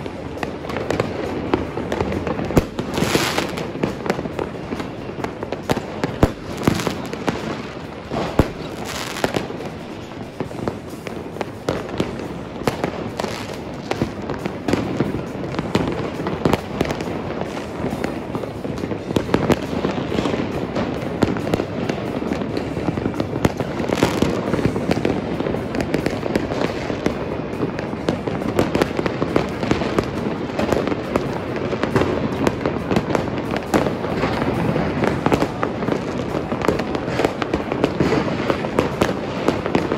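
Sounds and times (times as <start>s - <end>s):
loud firework booms: 0.0s - 9.8s
fireworks bangs and crackles: 0.0s - 39.9s.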